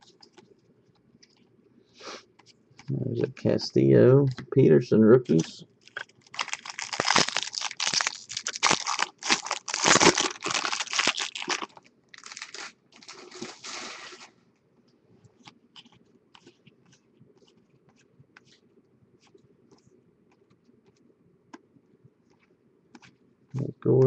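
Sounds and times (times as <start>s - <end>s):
foil wrapper tearing and crinkling: 5.8s - 14.3s.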